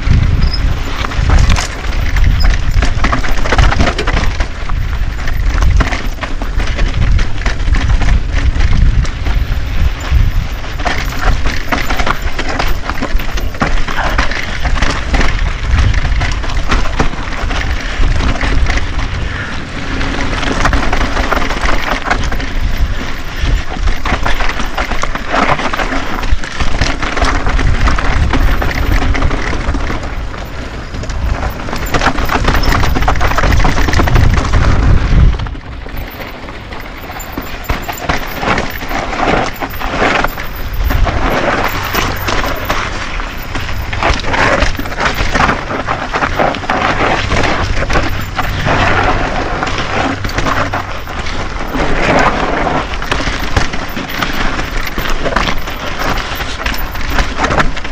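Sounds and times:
wind buffeting microphone: 0.0s - 25.2s, 26.6s - 57.9s
bike chain and frame rattling: 0.0s - 57.9s
tyres crunching on rock: 20.0s - 57.9s.

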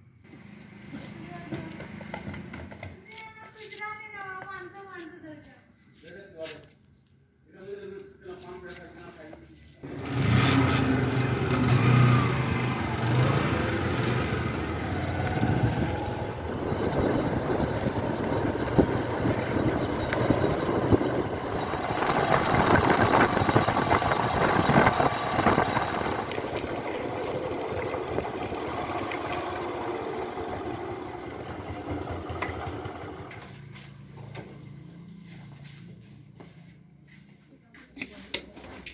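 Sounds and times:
motorcycle engine running: 9.8s - 36.4s.

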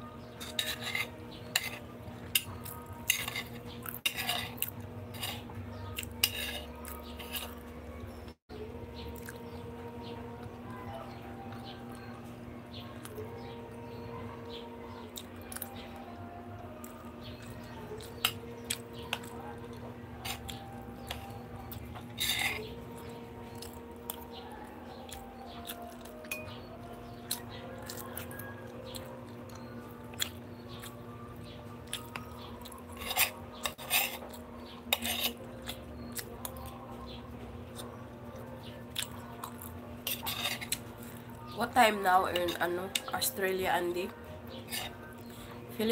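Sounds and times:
spoon scraping on plate: 0.2s - 7.7s, 17.4s - 24.2s, 32.2s - 36.6s, 39.5s - 41.3s, 44.5s - 45.4s.

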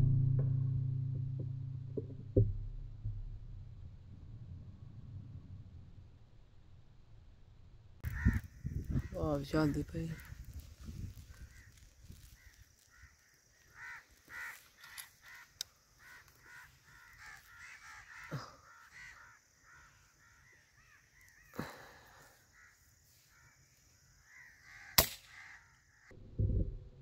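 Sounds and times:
birds calling: 8.0s - 26.1s
sharp crack: 24.8s - 25.7s.

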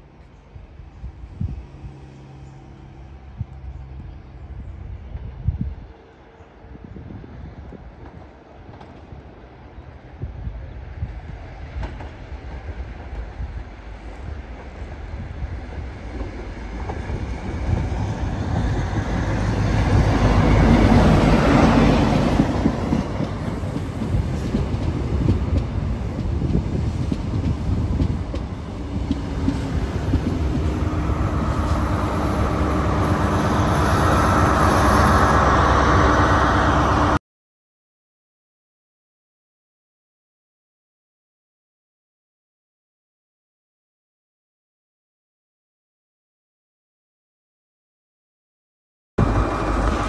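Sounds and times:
diesel train engine: 0.0s - 37.2s, 49.2s - 50.0s.

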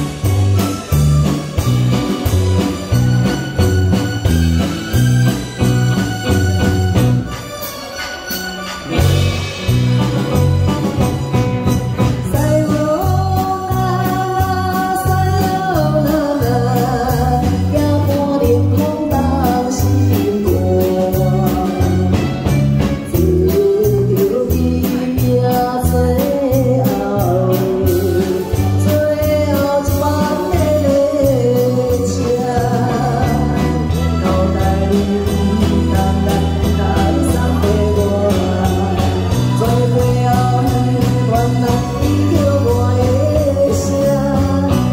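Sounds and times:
electric guitars: 0.0s - 44.9s
keyboard: 0.0s - 44.9s
woman singing into a microphone: 12.2s - 44.9s.

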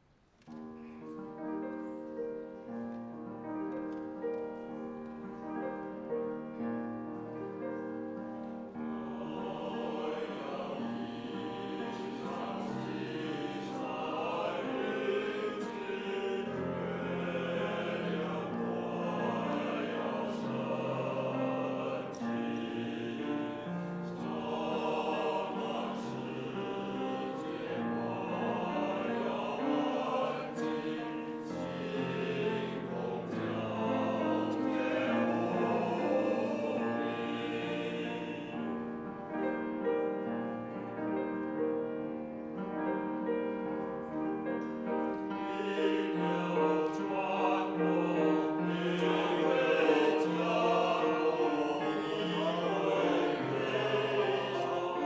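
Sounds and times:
piano accompaniment: 0.6s - 55.0s
male choir singing: 8.8s - 38.9s, 45.3s - 55.0s.

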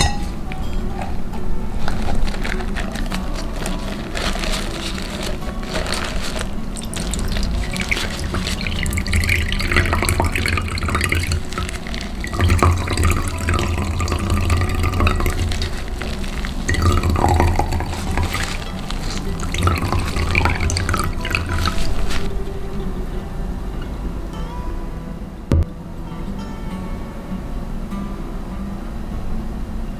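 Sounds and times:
juice splashing and trickling: 1.7s - 22.5s.

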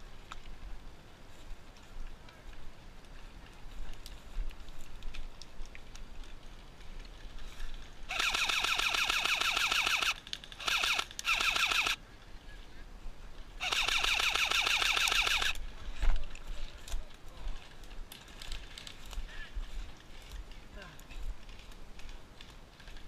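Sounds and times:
airsoft rifle firing bursts: 8.1s - 12.0s, 13.6s - 15.6s.

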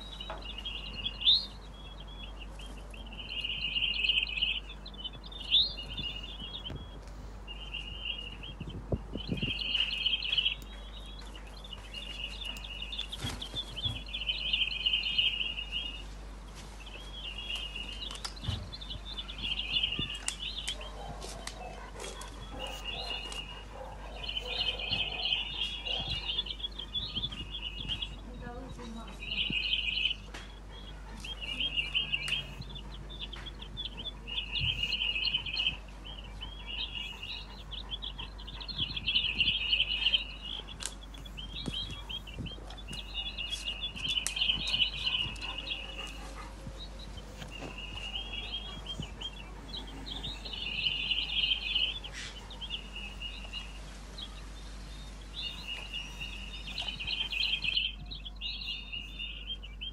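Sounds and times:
jay fledgling calling: 17.0s - 59.9s.

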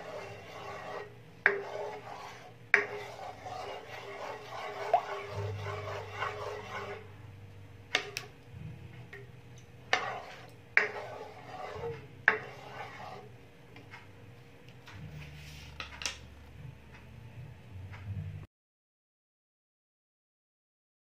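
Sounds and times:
ladle stirring in metal pan: 0.0s - 7.2s, 9.1s - 13.3s.

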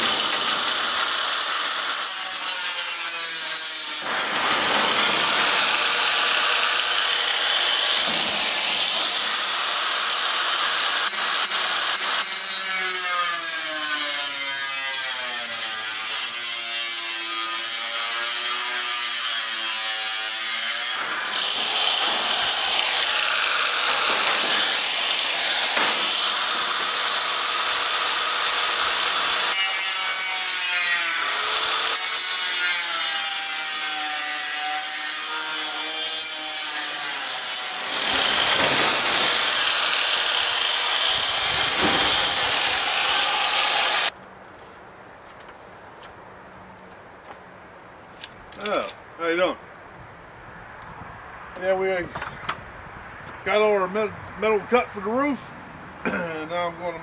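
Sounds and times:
angle grinder cutting metal: 0.0s - 44.1s.

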